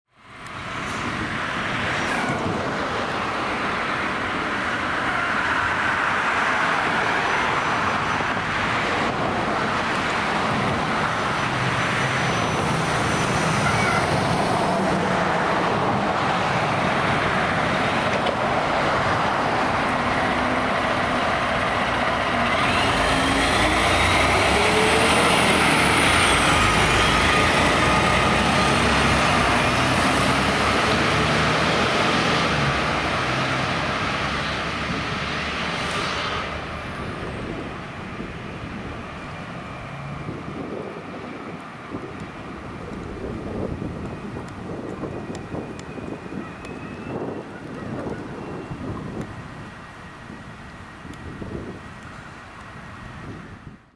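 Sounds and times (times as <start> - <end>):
fire truck diesel engine: 0.2 - 53.9
faint whistling whines: 45.1 - 48.8.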